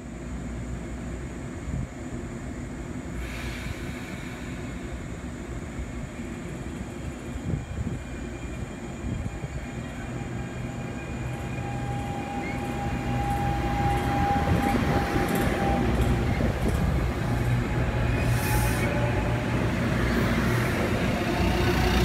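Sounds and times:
train running through station: 0.0s - 22.0s
train wheels clicking: 11.4s - 22.0s.

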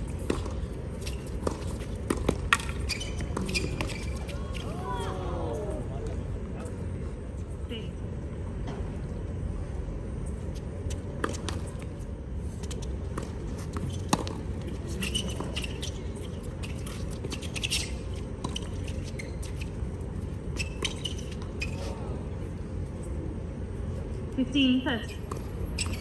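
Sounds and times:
shoe squeaks: 0.2s - 4.8s, 13.5s - 22.2s, 25.0s - 26.0s
tennis ball hit by rackets: 1.4s - 4.0s.

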